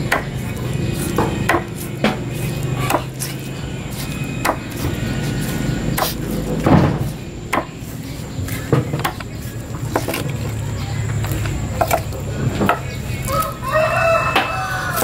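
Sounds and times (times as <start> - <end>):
steady low hum: 0.0 - 15.0
knife chopping on wooden block: 1.2 - 3.3, 4.4 - 4.9, 6.0 - 7.7.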